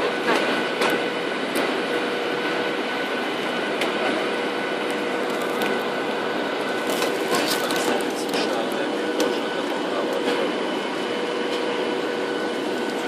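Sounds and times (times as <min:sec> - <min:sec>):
airliner cabin engine noise: 0:00.0 - 0:13.0.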